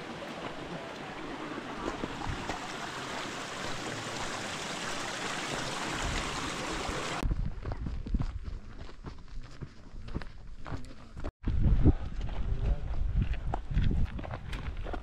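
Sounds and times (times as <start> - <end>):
stream water running: 0.0 - 7.2.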